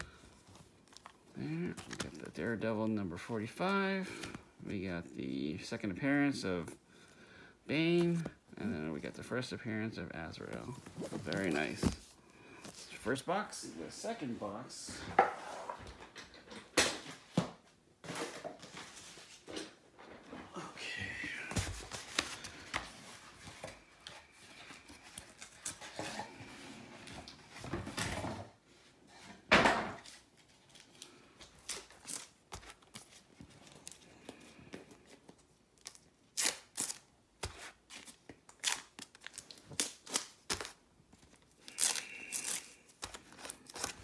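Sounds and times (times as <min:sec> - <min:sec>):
cardboard packaging tearing and rustling: 0:35.8 - 0:44.0.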